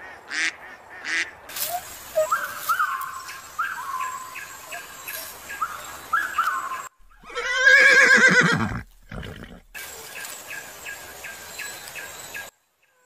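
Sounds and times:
horse whinnying: 7.2s - 9.8s.

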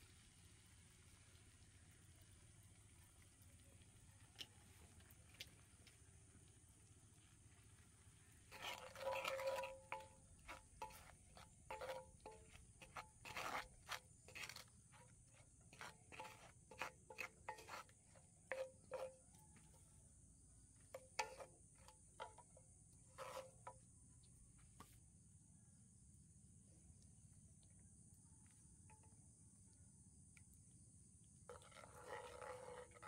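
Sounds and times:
wooden spatula scraping a skillet: 8.2s - 20.0s, 20.8s - 23.9s, 31.5s - 33.0s.

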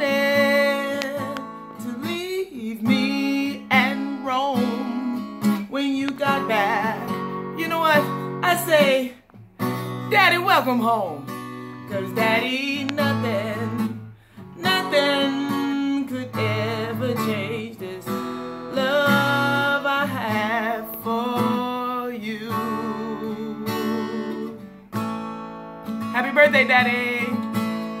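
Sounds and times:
woman singing with vibrato: 0.0s - 9.2s, 10.0s - 24.7s, 26.1s - 27.5s
strummed acoustic guitar: 0.0s - 28.0s.

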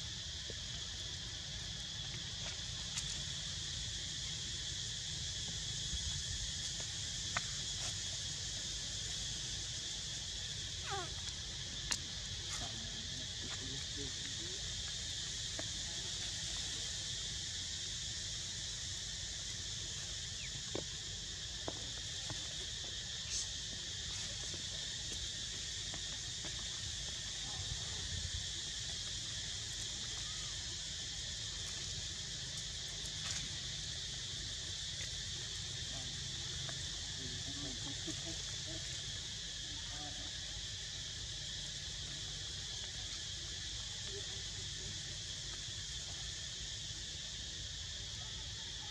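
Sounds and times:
insect chorus drone: 0.0s - 48.9s.

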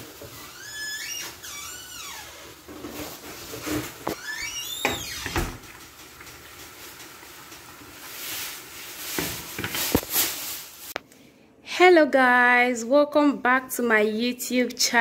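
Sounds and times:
spoon scraping with squeaks: 0.3s - 5.4s
dough sizzling in hot oil: 2.4s - 11.0s.

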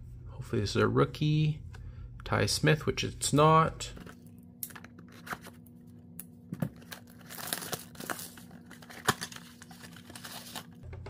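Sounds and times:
cardboard packaging crinkling and tearing: 6.7s - 10.8s.

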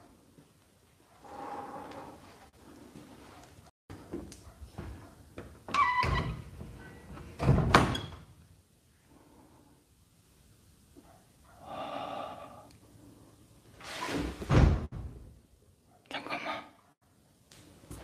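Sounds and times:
door creaking open: 5.6s - 8.3s, 13.8s - 14.8s.

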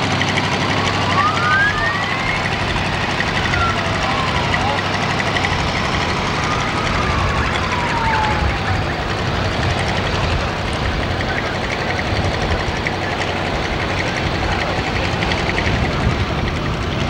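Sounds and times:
engine rumbling: 0.0s - 17.0s
siren-like tone sliding down: 0.6s - 11.9s.

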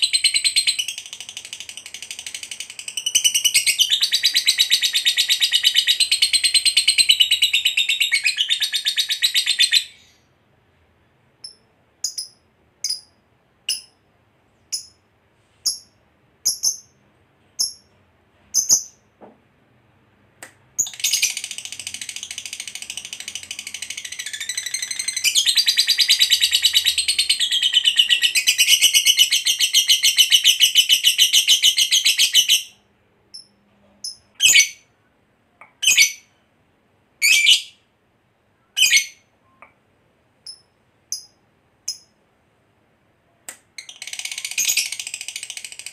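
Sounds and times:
lovebird chirping and trilling: 0.0s - 10.3s, 11.4s - 14.0s, 14.6s - 17.0s, 17.6s - 17.9s, 18.5s - 19.1s, 20.8s - 34.9s, 35.8s - 36.4s, 37.2s - 37.8s, 38.7s - 39.6s, 40.4s - 42.2s, 43.8s - 45.9s.

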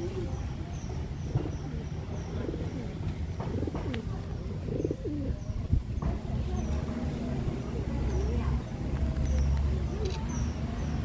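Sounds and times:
doves cooing: 0.0s - 5.7s.

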